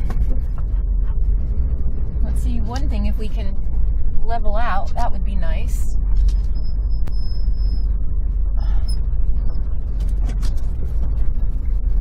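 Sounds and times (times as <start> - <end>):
engine and road rumble: 0.0 - 12.0.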